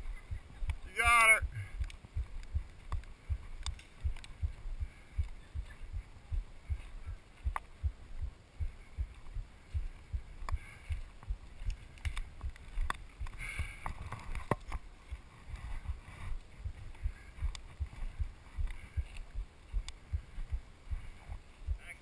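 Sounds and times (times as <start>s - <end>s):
footsteps on dirt trail: 0.0s - 21.8s
sharp clicks: 1.8s - 4.4s.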